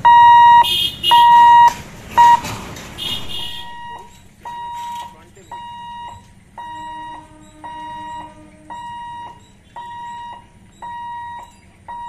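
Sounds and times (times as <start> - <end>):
warning hooter beeping: 0.0 - 12.0
low steady tone: 3.2 - 12.0.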